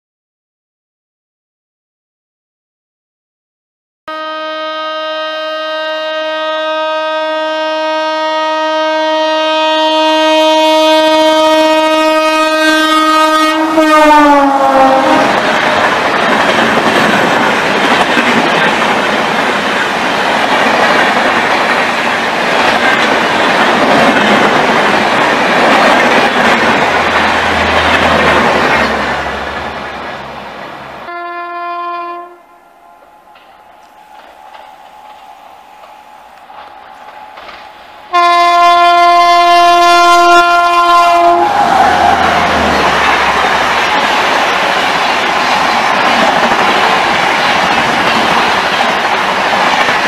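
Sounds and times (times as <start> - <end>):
train horn blast: 4.1 - 15.6, 31.0 - 33.4, 38.1 - 43.4
train coaches rushing past: 8.3 - 50.0.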